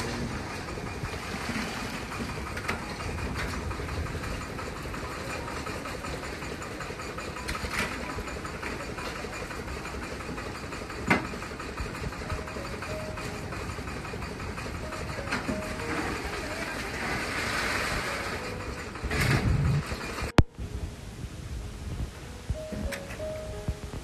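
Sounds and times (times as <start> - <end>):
tractor engine running: 0.0 - 24.0.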